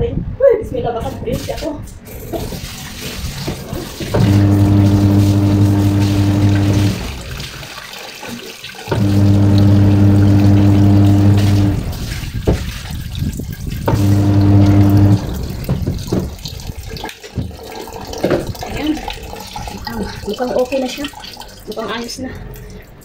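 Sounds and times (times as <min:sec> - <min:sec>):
water running: 0:01.2 - 0:23.0
washing machine motor humming: 0:03.6 - 0:07.8, 0:08.9 - 0:12.5, 0:13.8 - 0:16.5.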